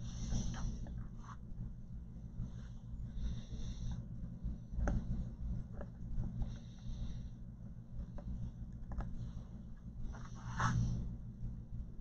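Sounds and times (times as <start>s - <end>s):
steady low hum: 0.0s - 12.0s
light clicks and taps: 8.0s - 9.3s.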